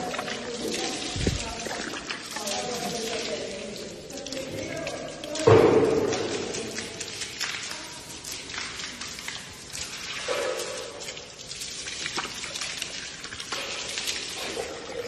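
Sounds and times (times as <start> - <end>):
hose water spraying and splattering: 0.0 - 15.0.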